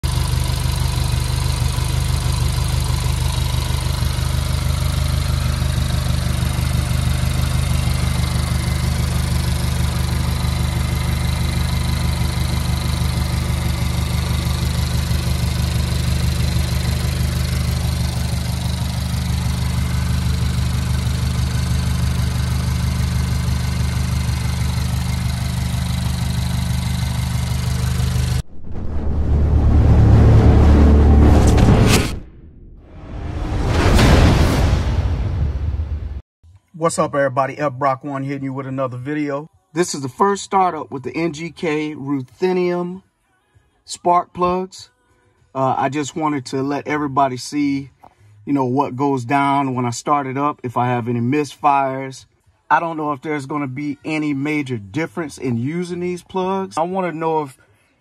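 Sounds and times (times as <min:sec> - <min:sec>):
car engine idling: 0:00.0 - 0:28.4.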